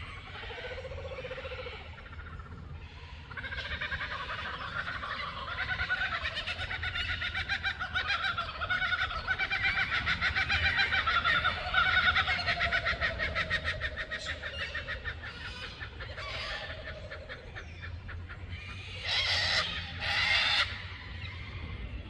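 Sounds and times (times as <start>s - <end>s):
kookaburra laughing call: 0.0s - 21.1s
harsh bird calls: 0.0s - 22.0s.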